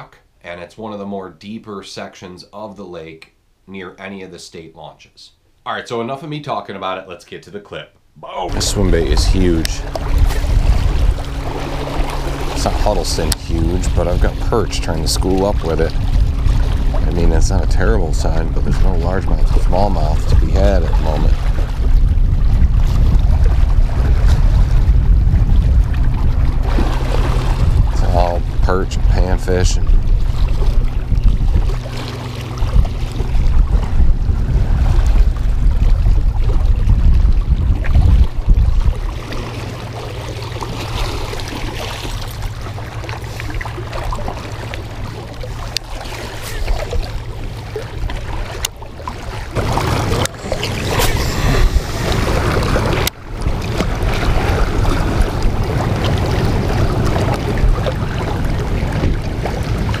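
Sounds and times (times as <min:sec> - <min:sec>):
small waves lapping on rocks: 0:08.5 - 0:21.8
wind buffeting microphone: 0:08.5 - 0:48.7, 0:49.3 - 1:00.0.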